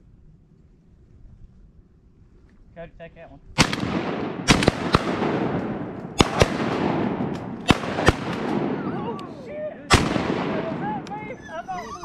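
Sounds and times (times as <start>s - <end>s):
shotgun blasts with echo: 3.6s - 11.3s
dog whining: 10.8s - 12.0s.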